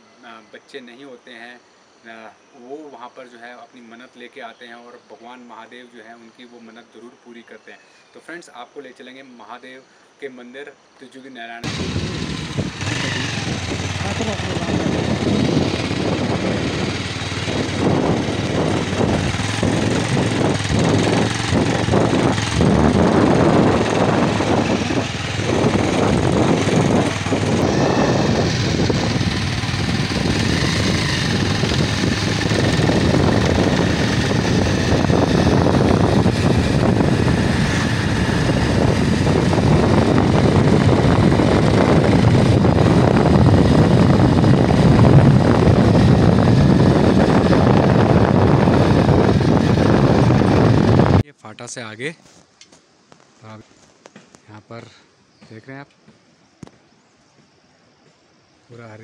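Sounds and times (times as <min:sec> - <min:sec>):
vehicle engine and road noise: 0:11.6 - 0:51.2
wind rushing on microphone: 0:11.6 - 0:51.3.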